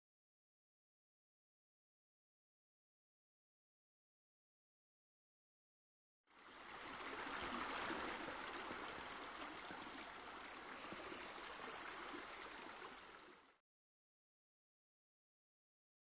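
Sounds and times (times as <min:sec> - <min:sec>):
running water: 0:06.3 - 0:13.6.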